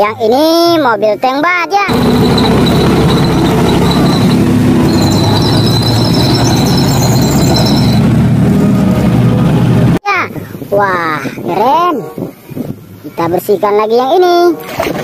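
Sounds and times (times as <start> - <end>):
high squeal from running gear: 1.9 - 8.1
tank driving through water: 1.9 - 8.9, 14.6 - 15.0
tank engine and tracks rumbling: 1.9 - 10.0.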